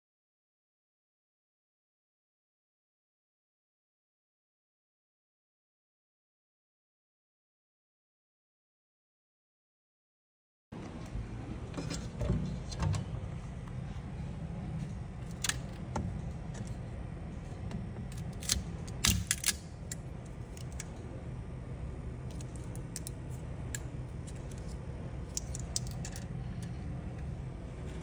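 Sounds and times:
steady low hum: 0:10.7 - 0:28.0
plastic parts clicking: 0:18.1 - 0:20.9, 0:25.3 - 0:26.7.

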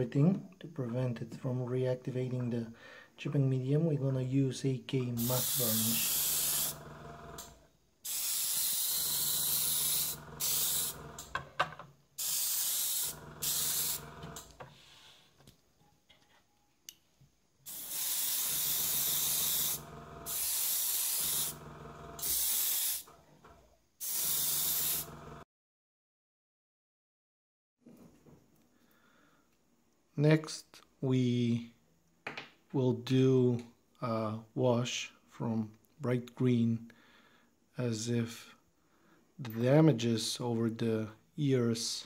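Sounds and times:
airbrush hissing bursts: 0:05.2 - 0:06.9, 0:08.0 - 0:11.2, 0:12.2 - 0:15.1, 0:17.6 - 0:21.6, 0:22.2 - 0:23.1, 0:24.0 - 0:25.2.

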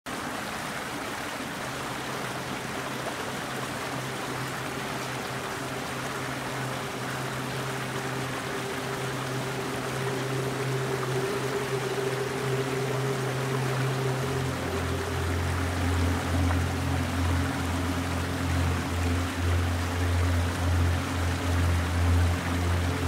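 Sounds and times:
low sustained tone: 0:01.9 - 0:23.0
higher sustained tone: 0:02.9 - 0:23.0.

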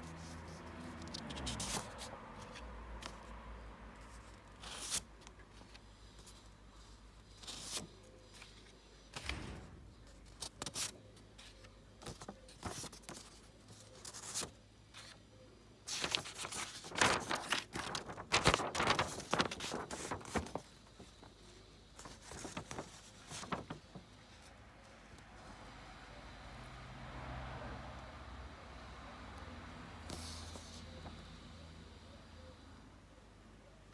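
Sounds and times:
paper sheets rustling: 0:00.0 - 0:03.3, 0:04.0 - 0:15.2, 0:15.9 - 0:25.0, 0:30.1 - 0:31.2.

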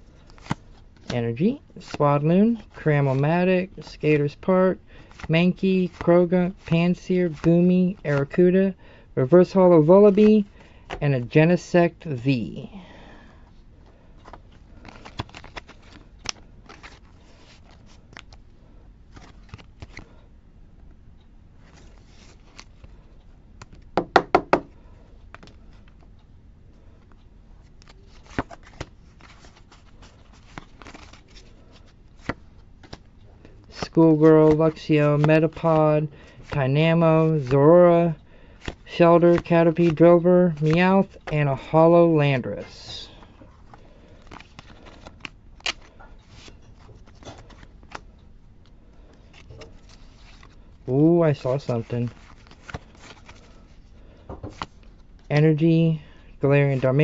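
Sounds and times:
cards and plastic rustling: 0:00.0 - 0:20.2, 0:21.6 - 0:26.2, 0:26.8 - 0:57.0
trading cards clicking and snapping: 0:14.2 - 0:18.4, 0:19.1 - 0:20.1, 0:23.6 - 0:24.7, 0:27.6 - 0:33.1, 0:38.5 - 0:41.4, 0:43.7 - 0:48.1, 0:51.6 - 0:53.5, 0:54.4 - 0:54.9
sharp knocks: 0:24.0 - 0:24.7.

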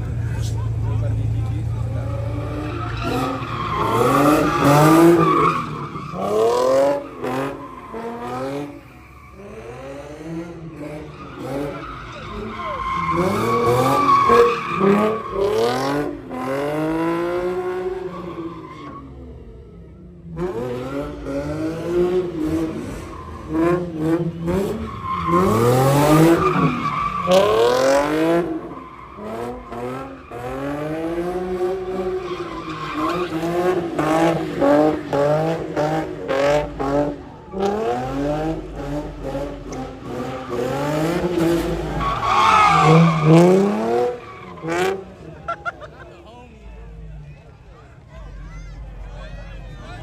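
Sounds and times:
tyres squealing on pavement: 0:00.0 - 0:09.9, 0:10.7 - 0:16.4, 0:17.8 - 0:19.3, 0:22.7 - 0:37.9, 0:39.7 - 0:46.0
car engine revving: 0:00.0 - 0:19.5, 0:20.2 - 0:45.5.

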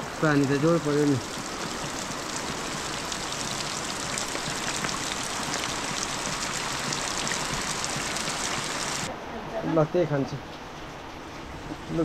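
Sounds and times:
heavy rain hissing: 0:00.0 - 0:09.1.

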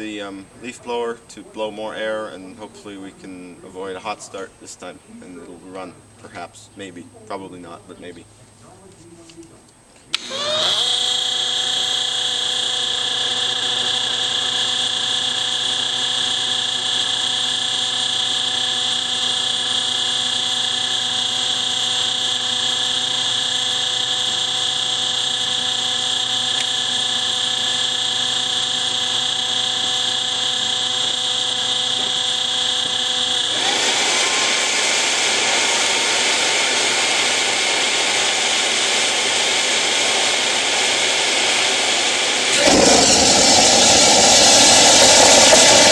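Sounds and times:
leaf blower running: 0:10.1 - 0:45.9
turbo whine rising in pitch: 0:10.2 - 0:45.9
turbojet combustion roar: 0:27.2 - 0:45.9.

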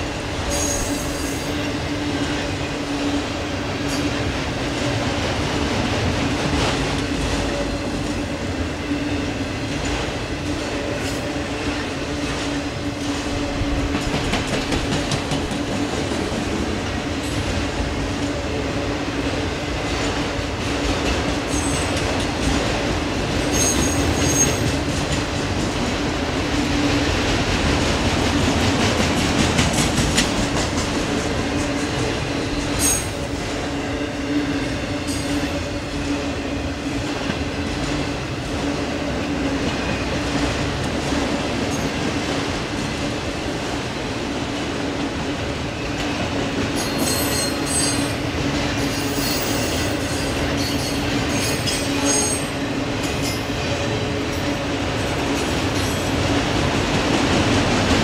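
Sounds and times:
freight train wheels rumbling: 0:00.0 - 0:58.0
train wheel squeals: 0:00.4 - 0:01.8, 0:21.4 - 0:22.3, 0:23.4 - 0:24.8, 0:31.5 - 0:36.3, 0:41.7 - 0:42.0, 0:45.8 - 0:48.2, 0:48.8 - 0:54.6.

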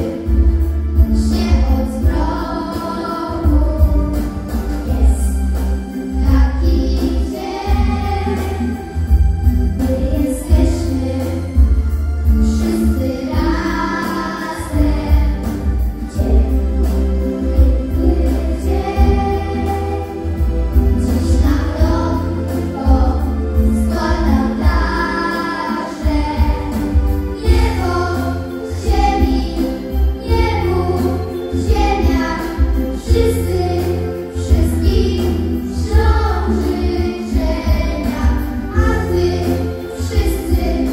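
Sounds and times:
children singing into microphones: 0:00.0 - 0:09.2, 0:09.8 - 0:40.9
music with heavy pulsing bass: 0:00.0 - 0:40.9.

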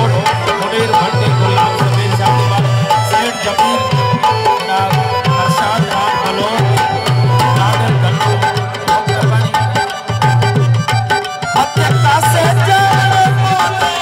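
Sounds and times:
tabla hand-drum rhythm: 0:00.0 - 0:14.0.

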